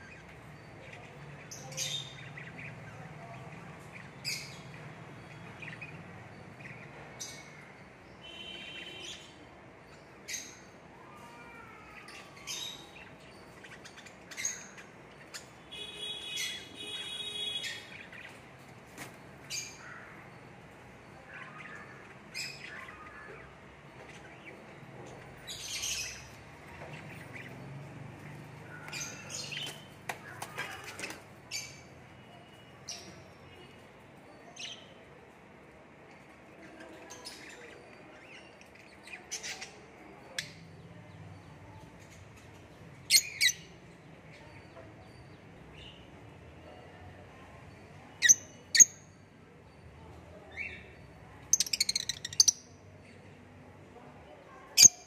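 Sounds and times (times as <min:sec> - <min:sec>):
parrots squawking and chirping: 0:10.3 - 0:18.4, 0:21.2 - 0:24.6, 0:25.3 - 0:27.6, 0:51.5 - 0:52.6.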